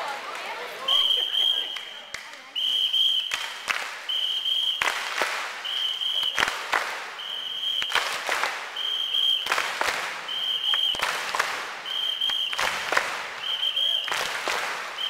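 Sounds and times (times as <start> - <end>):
applause: 0.0 - 15.0
whistle blasts: 0.8 - 5.0, 5.6 - 6.5, 7.2 - 8.1, 8.8 - 9.5, 10.3 - 11.0, 11.8 - 12.8, 13.4 - 14.1.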